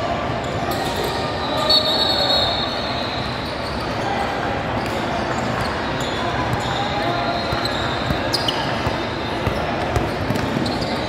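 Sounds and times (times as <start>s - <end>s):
din of players and spectators: 0.0s - 11.0s
high held squeak or whistle: 1.4s - 3.9s
basketball bouncing on court: 7.5s - 11.0s.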